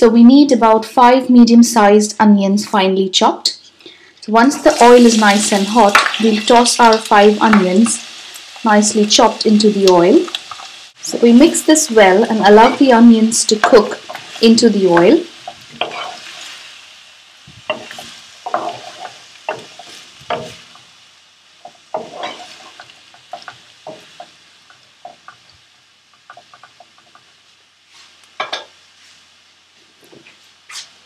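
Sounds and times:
onions sizzling in oil: 4.3s - 30.8s
wooden spoon scraping pan: 13.6s - 16.6s, 17.5s - 20.8s, 21.6s - 24.4s.

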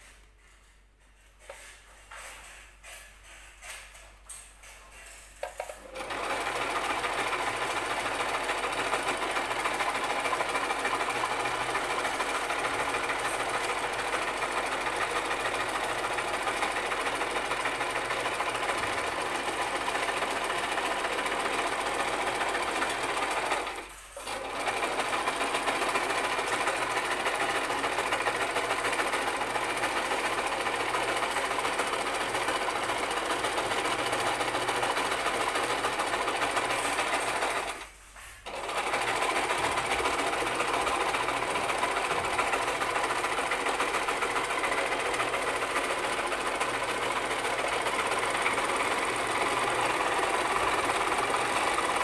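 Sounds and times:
sewing machine stitching: 5.0s - 52.0s.

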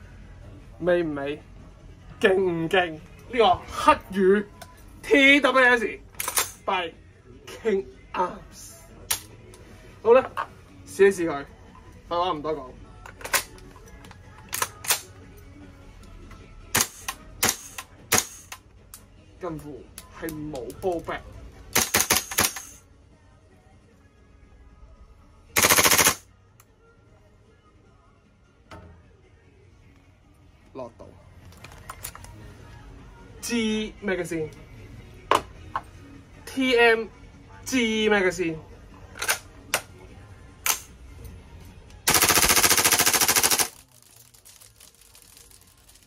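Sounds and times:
airsoft gun firing: 21.8s - 22.7s, 25.6s - 26.2s, 42.1s - 43.8s.

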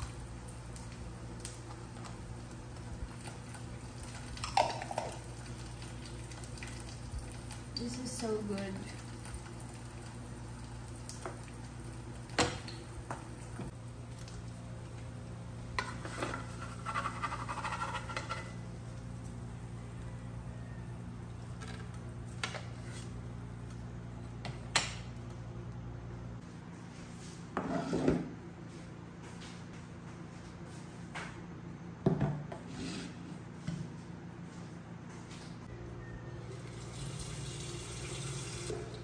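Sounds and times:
wooden spatula against frying pan: 15.8s - 18.5s.

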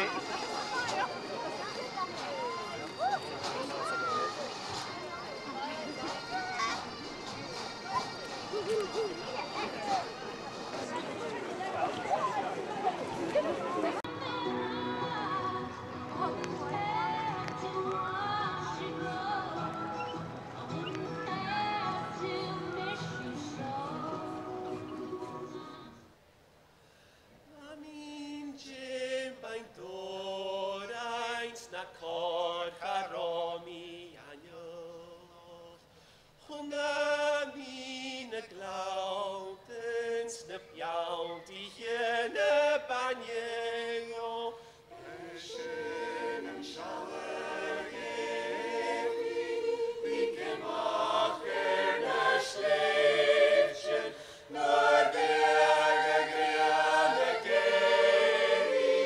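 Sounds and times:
mixed choir singing: 0.0s - 1.4s, 9.7s - 26.0s, 28.6s - 34.0s, 36.5s - 59.0s.

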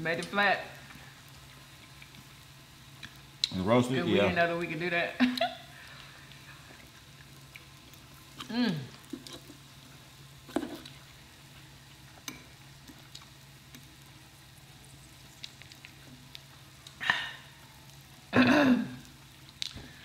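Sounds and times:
meat sizzling on grill plate: 0.0s - 20.0s.

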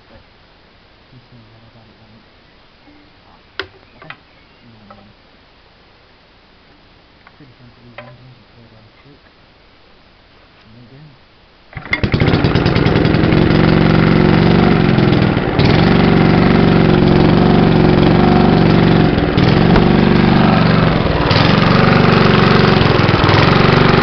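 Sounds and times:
small engine running: 11.8s - 24.0s.

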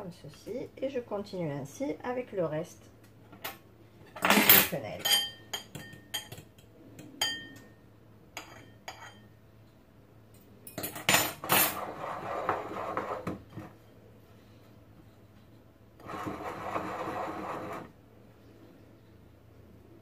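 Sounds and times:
fork clinking on ceramic bowls: 5.0s - 6.5s.

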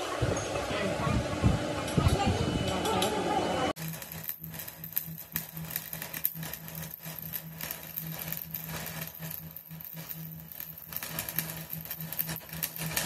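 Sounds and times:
machine pulsing hum: 1.2s - 13.0s.

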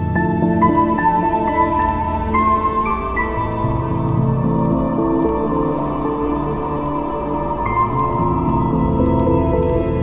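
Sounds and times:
slow ambient music: 0.0s - 10.0s.

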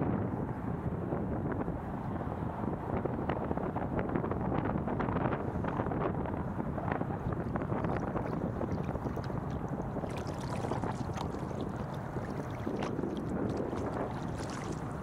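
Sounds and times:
wind noise on microphone: 0.0s - 15.0s
water slapping against hull: 6.8s - 15.0s
kayak paddles splashing: 7.2s - 15.0s.

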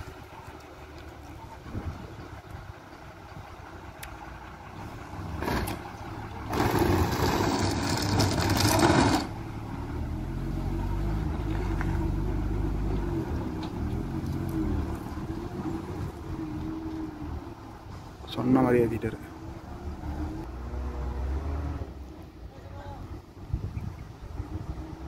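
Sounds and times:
bus diesel engine pulling hard: 0.0s - 25.0s.

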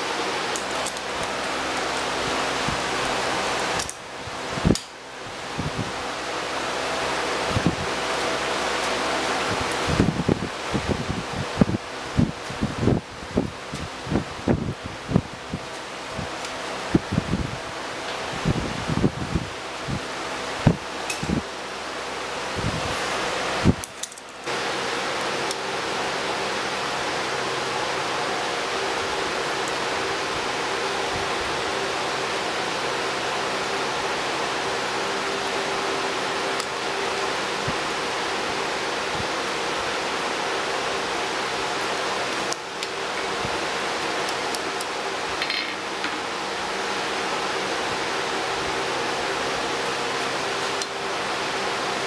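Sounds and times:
steady rushing noise: 0.0s - 25.2s
metal tools clinking on anvil: 3.8s - 4.0s.

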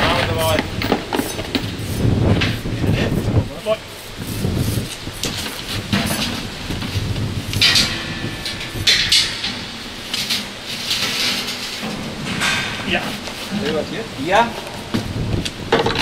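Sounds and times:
metal clanking and knocking: 5.3s - 16.0s.

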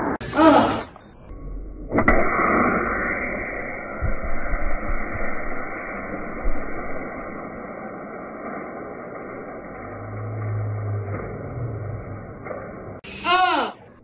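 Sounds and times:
muffled compressed air hiss: 2.0s - 7.4s.

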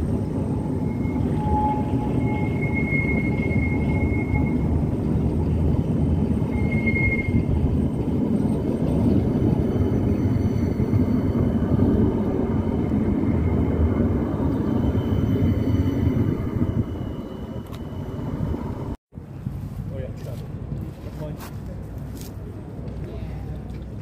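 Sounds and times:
tram rolling rumble: 0.0s - 24.0s
high-pitched wheel squeal: 0.4s - 19.0s.

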